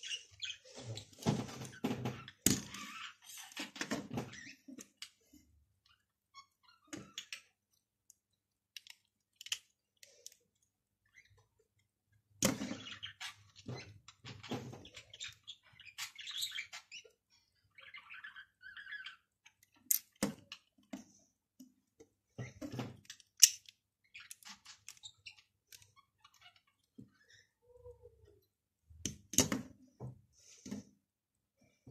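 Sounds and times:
plastic bricks clicking: 8.7 - 10.4.

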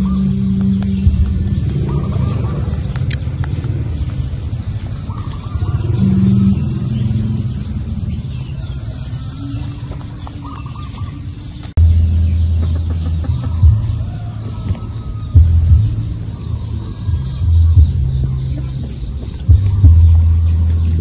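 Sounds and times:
small bird chirping: 0.0 - 14.2
low rumble and hum: 0.0 - 21.0.

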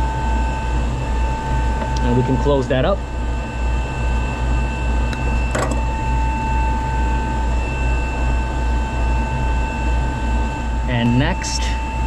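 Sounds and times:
high-pitched whines: 0.0 - 12.0
machinery humming: 0.0 - 12.0
tools and wires clattering: 5.5 - 5.9.

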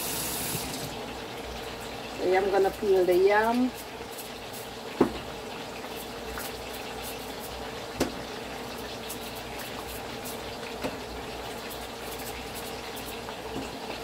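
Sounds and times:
chicken sizzling in oil: 0.0 - 14.0.

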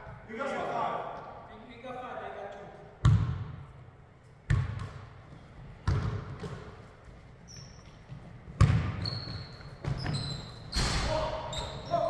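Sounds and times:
basketball bouncing on wood floor: 4.5 - 5.0, 5.8 - 6.7, 8.5 - 10.3
thin high squeak: 9.0 - 12.0.

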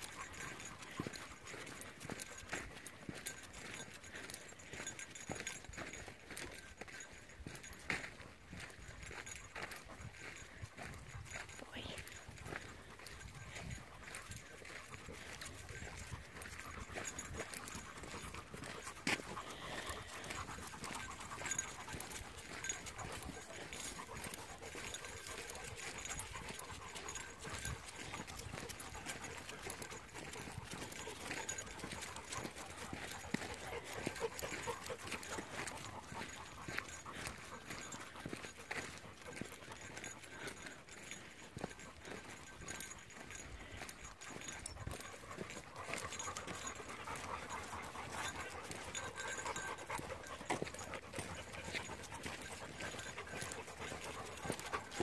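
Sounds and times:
dog panting: 0.0 - 55.0
dogs trotting: 0.0 - 55.0
footsteps on dirt trail: 0.0 - 55.0.

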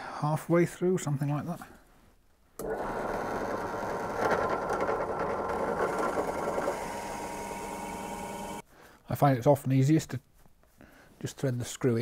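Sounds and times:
drill press running with whine: 2.6 - 8.6.

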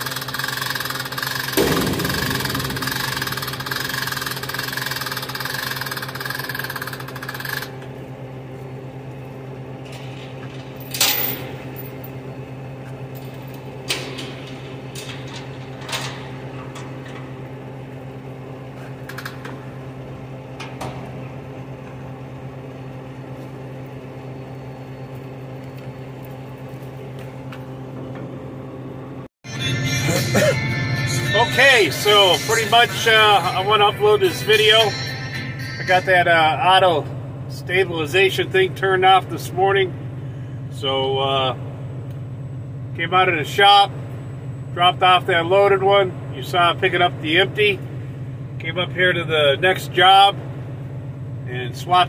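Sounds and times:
metal clanks: 1.3 - 7.4, 13.1 - 17.7
higher hum: 1.5 - 6.2, 29.5 - 37.4
diesel engine idling: 29.8 - 40.8.

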